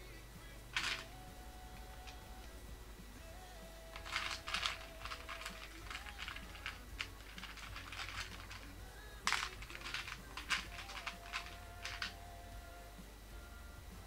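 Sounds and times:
plastic bricks clicking: 0.8s - 1.1s, 4.0s - 12.2s.

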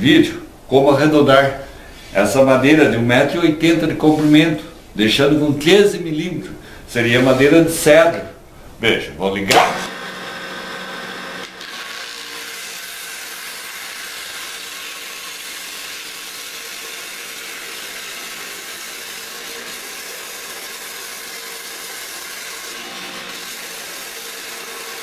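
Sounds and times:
cutter shaving wood hiss: 9.5s - 25.0s.

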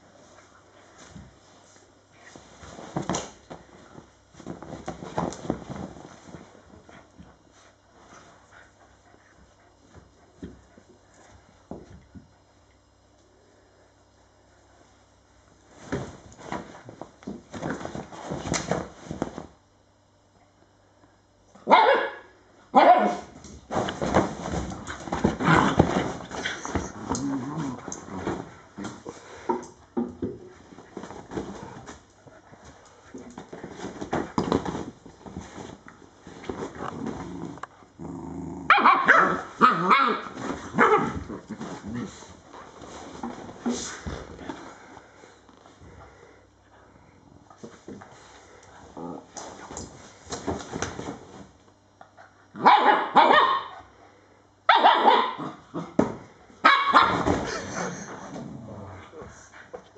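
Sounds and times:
dog barking: 21.6s - 23.2s, 38.7s - 40.2s, 52.6s - 53.8s, 54.7s - 55.5s, 56.6s - 57.2s
dogs play growling: 23.7s - 44.9s, 47.4s - 51.4s, 57.2s - 59.9s.

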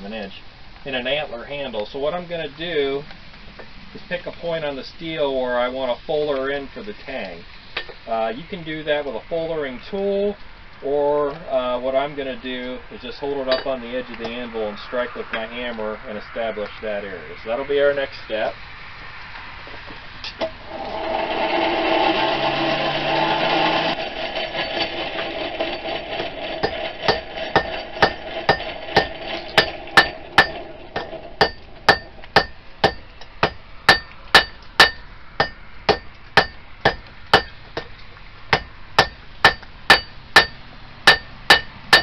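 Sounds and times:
hammer striking steel on anvil: 13.5s - 13.7s, 26.6s - 37.9s, 38.5s - 42.0s.

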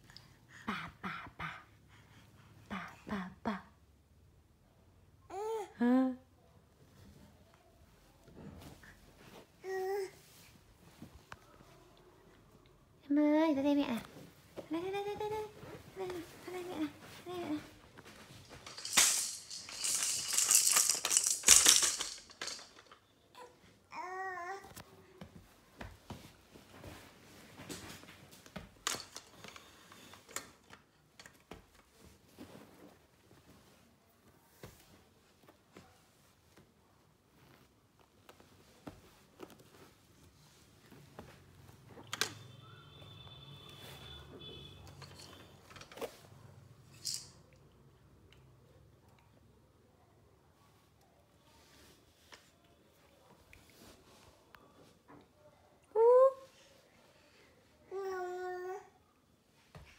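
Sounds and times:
toy rattle shaking: 18.4s - 23.0s, 28.8s - 29.3s, 46.9s - 47.4s
faint high tone: 42.1s - 45.0s.

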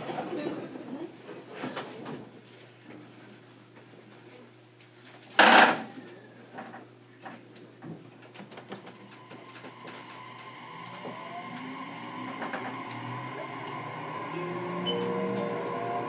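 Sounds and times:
electric whine of train: 8.8s - 16.0s.

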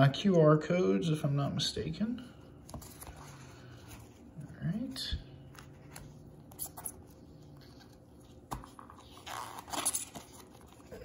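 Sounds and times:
card rustling: 2.5s - 11.0s.

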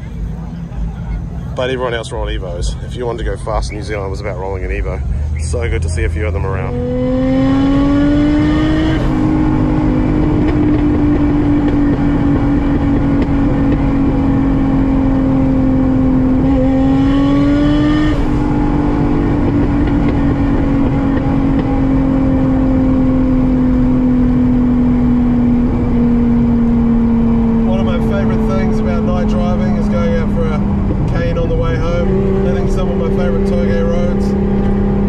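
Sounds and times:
car engine accelerating: 0.0s - 35.0s.

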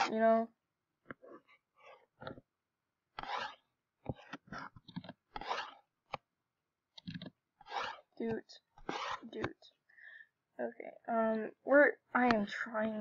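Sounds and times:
finger scratching on touch surface: 3.2s - 5.8s, 7.0s - 8.2s, 8.8s - 9.5s.

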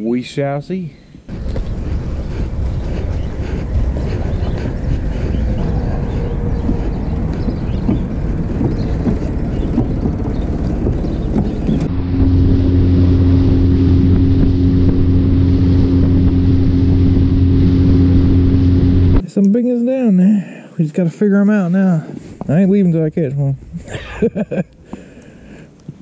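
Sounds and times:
hull rushing through water: 1.3s - 19.2s
outboard motor droning: 1.3s - 19.2s
wind buffeting microphone: 1.3s - 19.2s.

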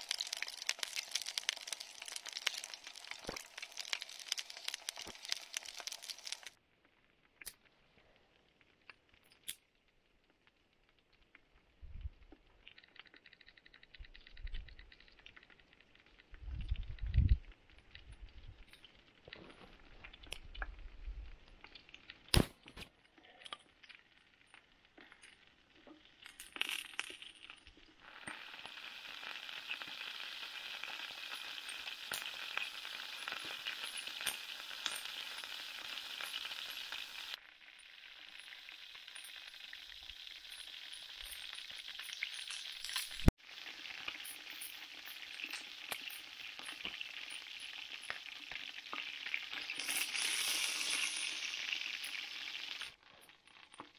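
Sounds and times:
meat sizzling in a frying pan: 0.0s - 6.6s, 27.9s - 53.9s.

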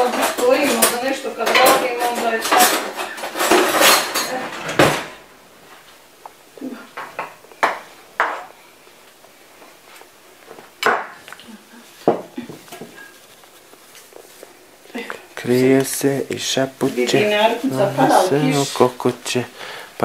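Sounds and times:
dishes clinking: 0.0s - 5.2s
dishes and utensils clattering: 0.0s - 5.3s.

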